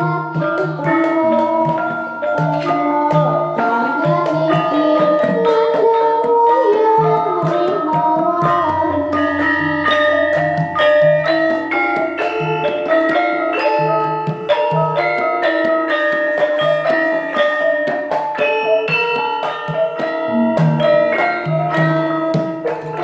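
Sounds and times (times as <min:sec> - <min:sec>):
woman singing: 0:00.0 - 0:12.4
hand drum pattern: 0:00.0 - 0:23.0
metallophone notes ringing: 0:00.0 - 0:23.0.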